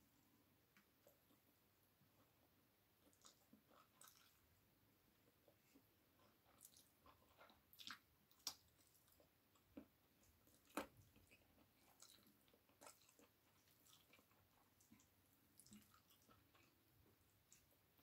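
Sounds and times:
chewing and mouth smacks: 3.0s - 4.5s, 5.2s - 18.0s.

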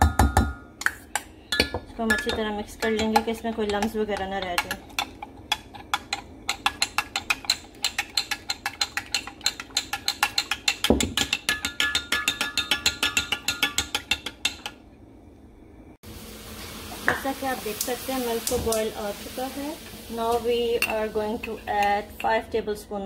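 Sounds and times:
spoon clinking against glass jug: 1.5s - 14.7s.

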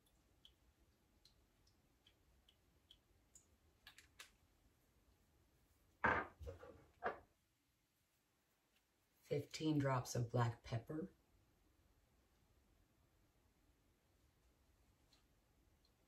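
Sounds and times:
soft dripping ticks: 0.0s - 4.4s, 15.0s - 16.0s
bottles set down on countertop: 6.0s - 7.2s.

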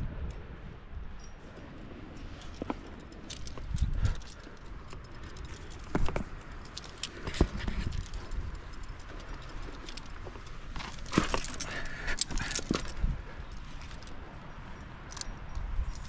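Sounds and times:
metal climbing gear clinking: 0.0s - 16.0s.

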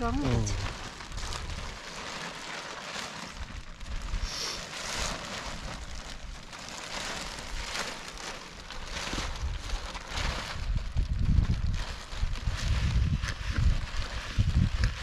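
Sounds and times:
wind on microphone: 9.2s - 15.0s.

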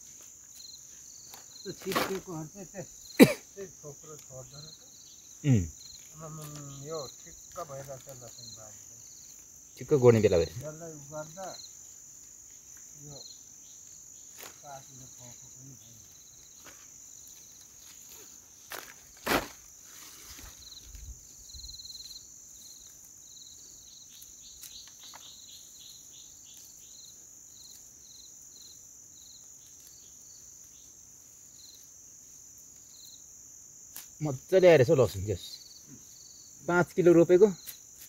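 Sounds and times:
insect chirping in pulses: 0.0s - 38.0s
insects chirring: 0.0s - 38.0s.

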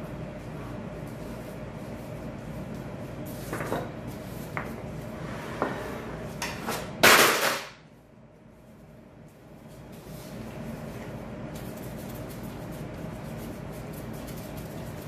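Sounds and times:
low background hum: 0.0s - 15.0s
scrape or rustle: 8.7s - 15.0s.

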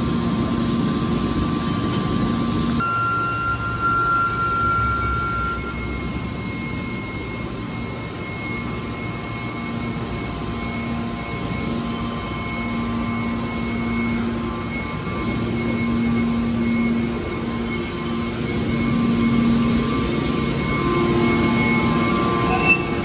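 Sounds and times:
hydraulic machine humming: 0.0s - 23.0s.

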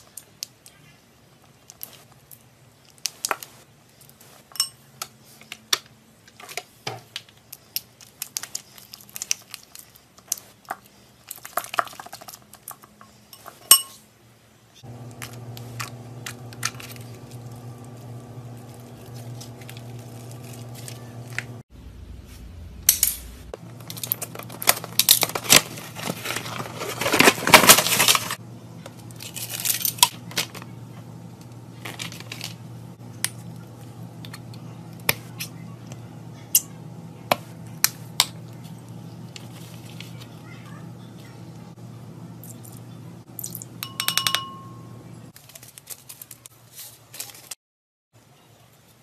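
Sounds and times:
low steady hum: 14.8s - 45.3s.

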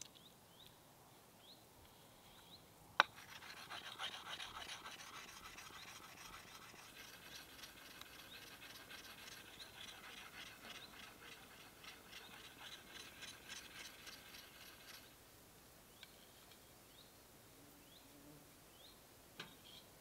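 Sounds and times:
blade scraping wooden stick: 3.0s - 15.1s.

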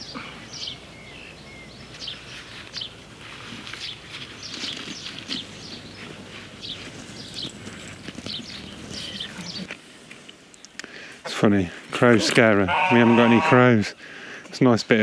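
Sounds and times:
small birds chirping: 0.0s - 11.3s
compost rustling: 1.7s - 13.6s.

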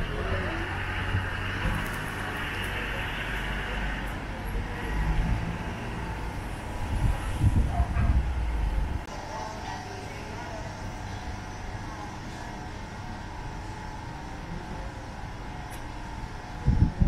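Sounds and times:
motor vehicle running: 0.0s - 9.1s.

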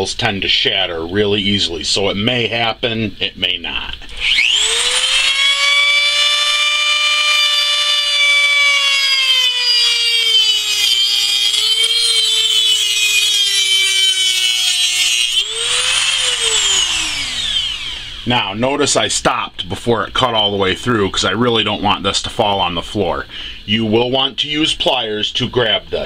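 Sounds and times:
rotary tool cutting metal: 4.1s - 18.0s
rotary tool winding down: 4.1s - 18.3s.

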